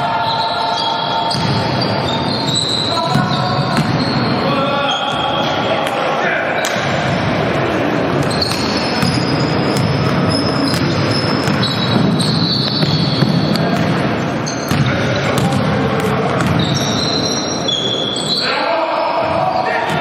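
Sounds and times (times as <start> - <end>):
basketball bouncing on wooden floor: 3.1 - 4.0, 8.3 - 14.0, 14.7 - 17.0.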